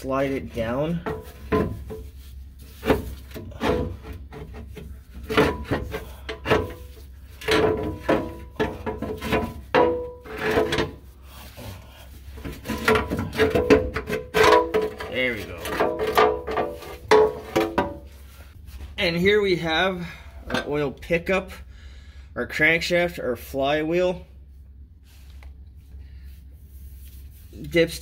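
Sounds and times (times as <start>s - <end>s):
metal pan scraping and knocking: 2.8s - 11.0s, 12.4s - 18.1s.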